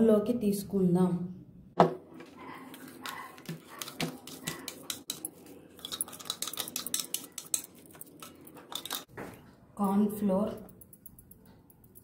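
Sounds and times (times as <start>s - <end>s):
spoon scraping steel jar: 2.5s - 9.1s.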